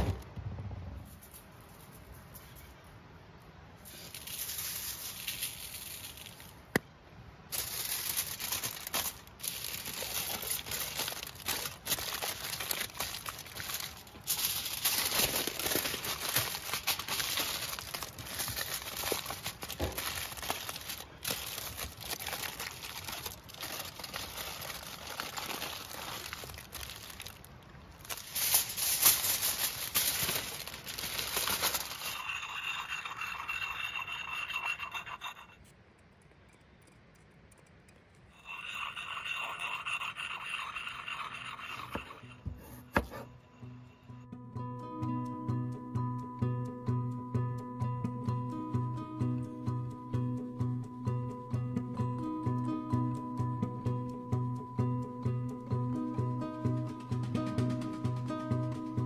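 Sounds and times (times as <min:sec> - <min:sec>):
aluminium foil crinkling: 0:03.8 - 0:06.8, 0:07.5 - 0:33.1
sharpening puck scraping steel: 0:32.2 - 0:35.6.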